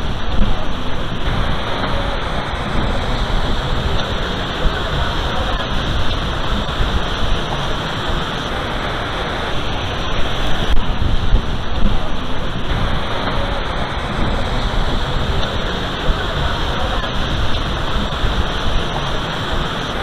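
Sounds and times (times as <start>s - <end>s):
falling water rushing: 0.0s - 20.0s.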